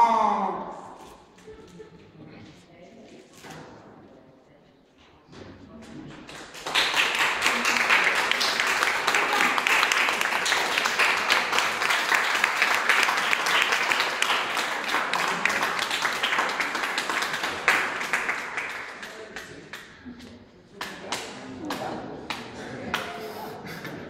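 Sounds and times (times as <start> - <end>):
small audience applauding: 6.2 - 20.2.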